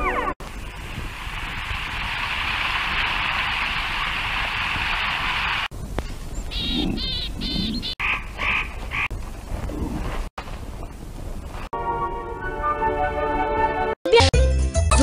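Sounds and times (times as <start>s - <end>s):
chorus of animal calls: 6.5s - 9.1s
short animal calls: 6.5s - 9.1s.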